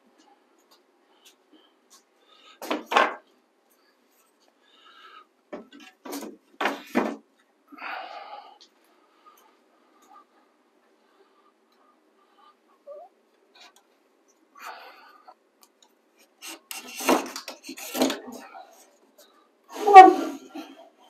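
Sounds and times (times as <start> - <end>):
wooden boards knocking: 2.6 - 3.2.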